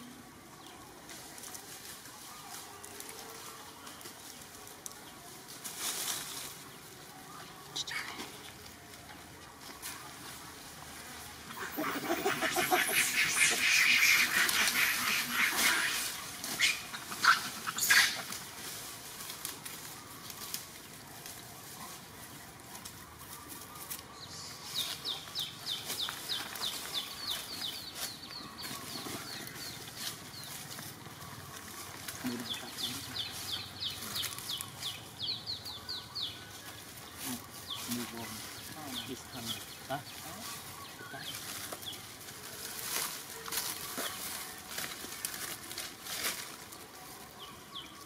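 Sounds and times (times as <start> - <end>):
dry leaves crackling and rustling: 0.0 - 48.0.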